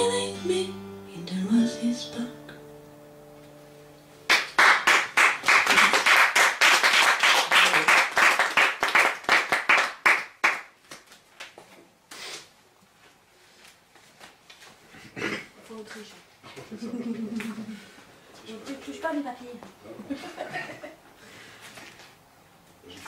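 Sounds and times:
acoustic guitar chord ringing: 0.0s - 4.3s
audience applauding: 4.3s - 10.8s.

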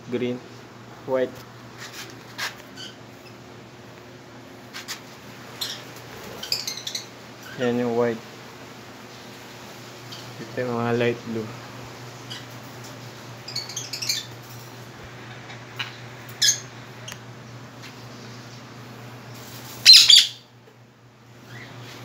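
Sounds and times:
ceiling fan humming: 0.0s - 22.0s
parrots chirping and squawking: 2.7s - 3.4s, 5.5s - 7.8s, 10.1s - 10.4s, 12.2s - 12.7s, 13.4s - 14.7s, 15.8s - 16.8s, 19.6s - 20.5s.

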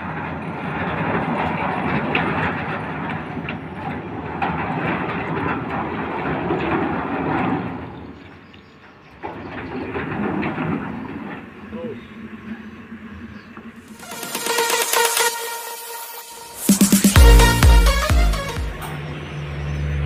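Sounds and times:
sliding gate rolling clatter: 0.0s - 15.0s.

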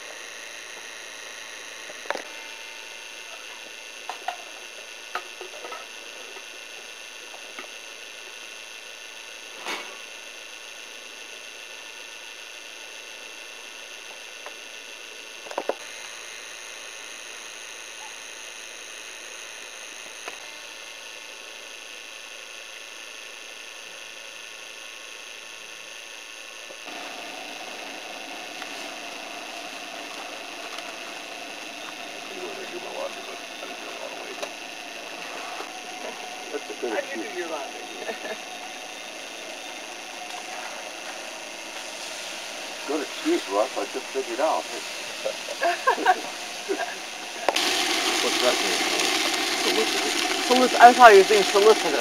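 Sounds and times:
camcorder hiss with faint whine: 0.0s - 52.0s
faint constant tones: 0.0s - 52.0s
loud steady drone: 26.8s - 52.0s
steady low hiss: 26.9s - 52.0s.

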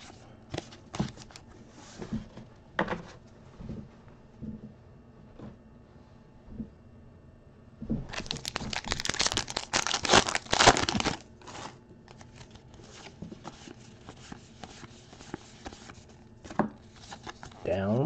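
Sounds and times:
wrapper tearing and crinkling: 8.1s - 12.8s
cards rustling and clicking: 8.1s - 17.6s.

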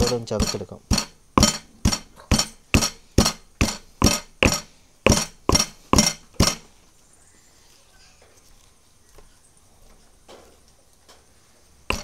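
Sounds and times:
stone pestle pounding in mortar: 0.0s - 6.6s.

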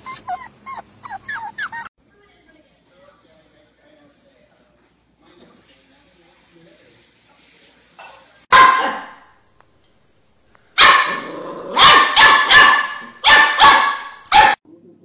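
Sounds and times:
dog barking loudly: 8.5s - 9.2s, 10.8s - 14.6s.

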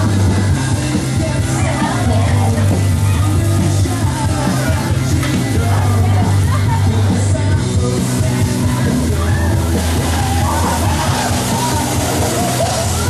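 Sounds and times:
loud rock music: 0.0s - 13.0s
person singing: 0.0s - 13.0s.

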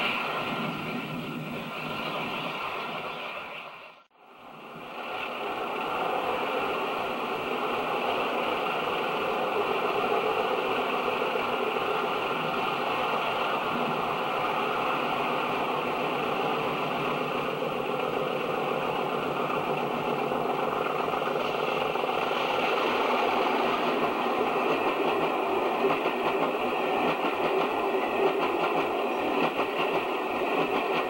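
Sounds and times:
train coaches rolling on rails: 0.0s - 31.0s
wheels clicking on rails: 6.6s - 31.0s.

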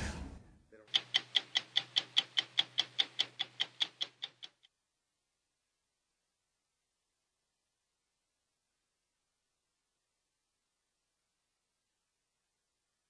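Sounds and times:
stopwatch ticking: 0.9s - 4.6s.

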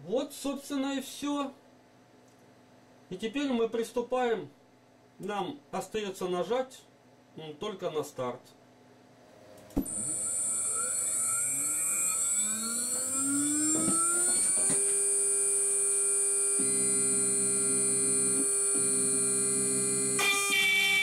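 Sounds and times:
low hum: 9.8s - 20.2s
router spindle whine: 9.8s - 21.0s.

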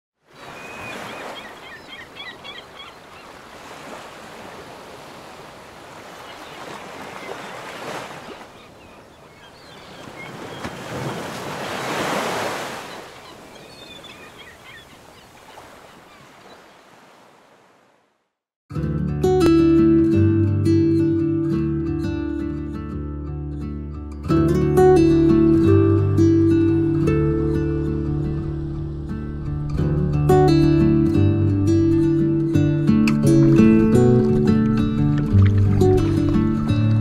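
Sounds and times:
water washing at shore: 0.2s - 18.1s, 33.2s - 36.8s.

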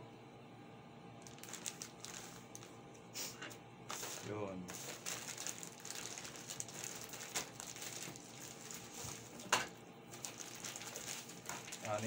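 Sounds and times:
plastic pouch rustling and crinkling: 1.2s - 2.8s, 3.9s - 12.0s.

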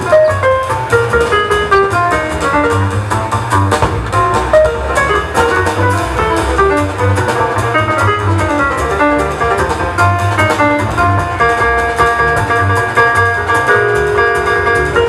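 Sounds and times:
jazz lead quick notes: 0.0s - 15.0s
walking double bass: 0.0s - 15.0s.

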